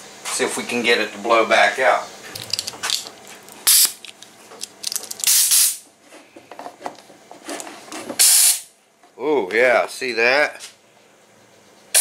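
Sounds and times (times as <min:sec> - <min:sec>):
compressed air blasts hissing: 0:03.7 - 0:04.0, 0:05.2 - 0:05.8, 0:08.2 - 0:08.7.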